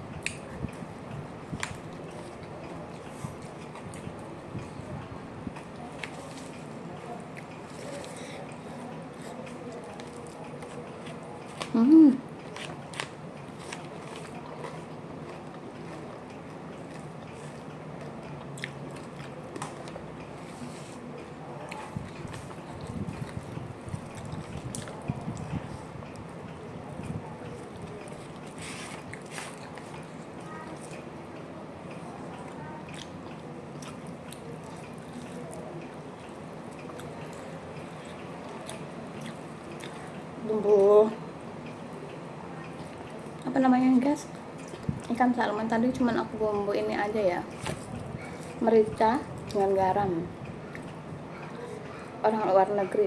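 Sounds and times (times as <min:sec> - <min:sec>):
steady background noise: 0:00.0 - 0:53.0
wet eating sounds: 0:05.5 - 0:31.2, 0:31.9 - 0:40.3, 0:44.2 - 0:46.2
person chewing crunchy food: 0:12.4 - 0:21.0, 0:21.7 - 0:25.6, 0:27.5 - 0:31.0, 0:31.9 - 0:40.2.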